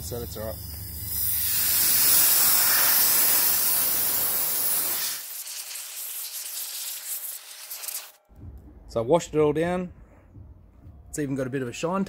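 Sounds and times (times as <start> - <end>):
hose nozzle spraying hiss: 0.4 - 8.2.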